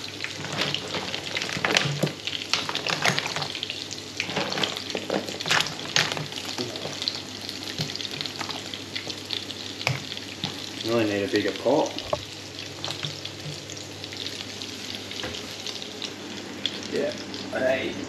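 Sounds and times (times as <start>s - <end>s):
frying in hot oil sizzle: 0.0s - 18.0s
shells clattering in pot: 0.3s - 3.6s, 4.2s - 7.2s.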